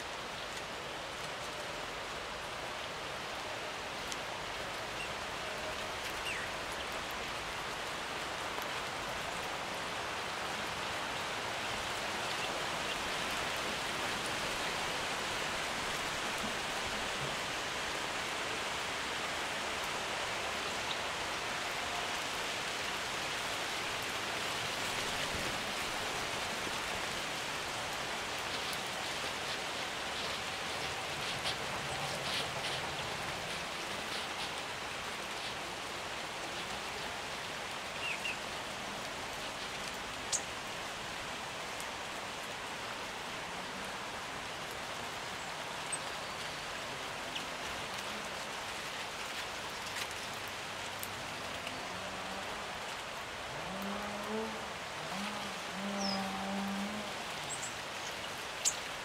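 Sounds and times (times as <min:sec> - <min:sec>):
steady rushing hiss: 0:01.6 - 0:51.5.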